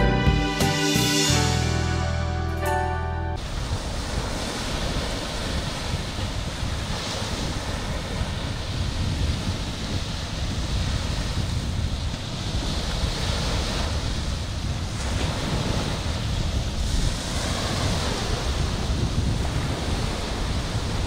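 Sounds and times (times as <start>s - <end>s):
small waves breaking on beach: 3.4s - 21.0s
wind buffeting microphone: 3.4s - 21.0s.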